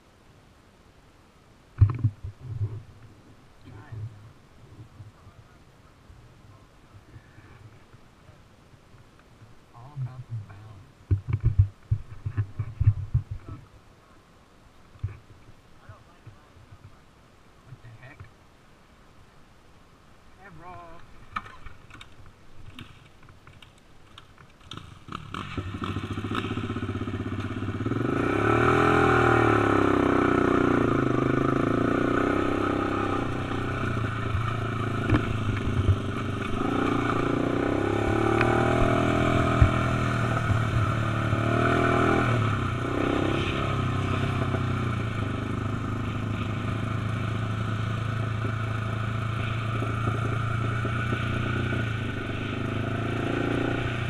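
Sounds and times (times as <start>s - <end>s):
quad engine revving: 24.7s - 54.0s.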